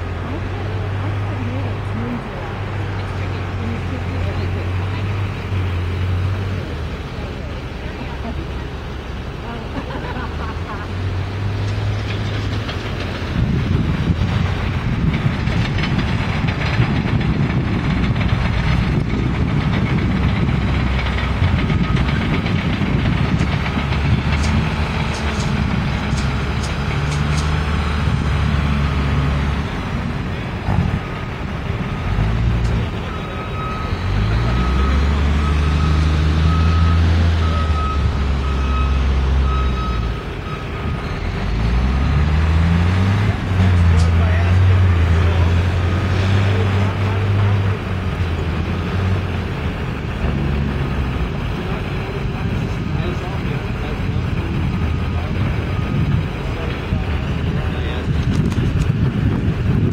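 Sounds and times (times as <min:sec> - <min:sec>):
diesel truck engines revving: 0:00.0 - 0:59.9
reversing alarm beeping: 0:32.9 - 0:41.8.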